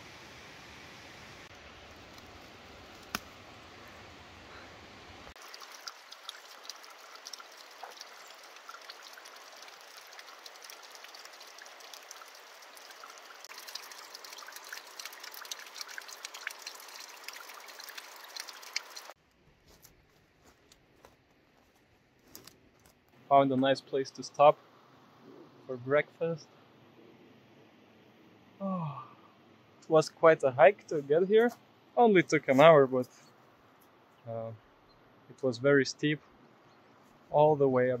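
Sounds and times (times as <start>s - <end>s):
water dripping down rock: 5.4s - 19.2s.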